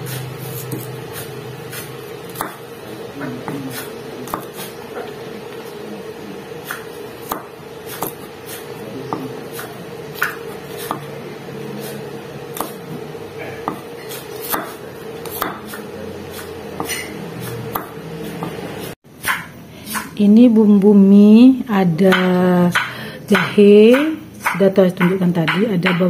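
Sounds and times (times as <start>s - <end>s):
steady hum: 0.0s - 26.0s
knife chopping on wooden board: 0.1s - 5.1s, 6.6s - 11.1s, 12.5s - 13.0s, 13.6s - 18.6s, 22.1s - 26.0s.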